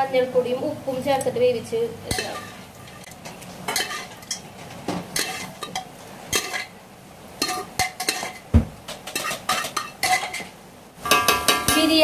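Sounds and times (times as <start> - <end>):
spoon stirring in metal pan: 2.0 - 12.0
spoon clinking against pan: 7.4 - 8.4, 9.1 - 12.0
dull knock: 8.5 - 8.8.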